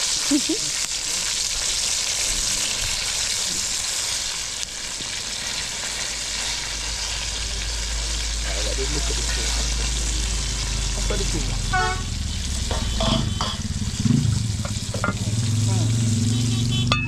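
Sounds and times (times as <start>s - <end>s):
chicken sizzling in hot oil: 0.0s - 16.9s.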